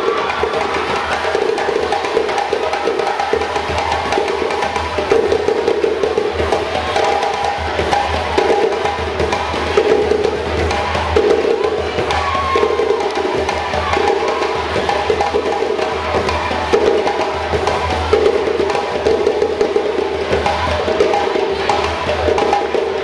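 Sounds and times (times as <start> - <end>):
fast driving drumming: 0.0 - 23.0.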